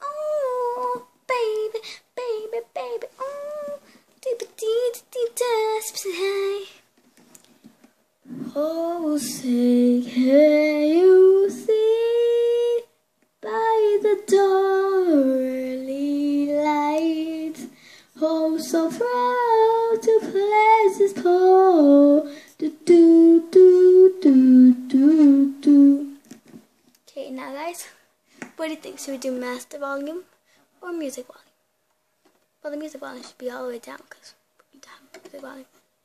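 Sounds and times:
girl singing unaccompanied: 0.0s - 7.0s, 8.2s - 26.3s, 32.6s - 35.8s.

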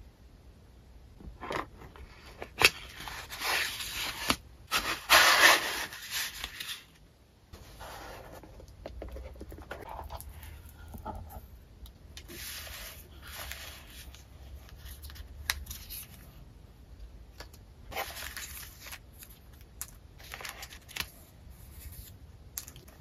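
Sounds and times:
paper and cardboard rustling: 1.4s - 7.0s, 12.2s - 16.4s, 17.9s - 22.2s.

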